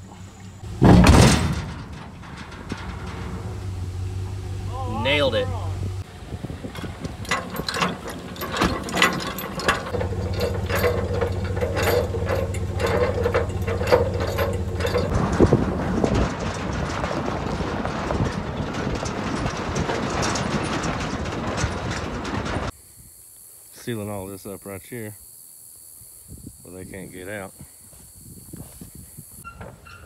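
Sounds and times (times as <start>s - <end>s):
pickup engine running: 0.0s - 22.7s
tires rolling on gravel: 0.0s - 22.8s
trailer jack gears clicking: 0.3s - 4.7s, 6.6s - 22.7s.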